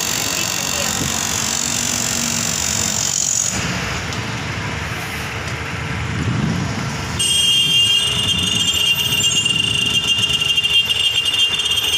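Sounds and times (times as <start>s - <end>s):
high-pitched machine whine: 0.0s - 3.6s.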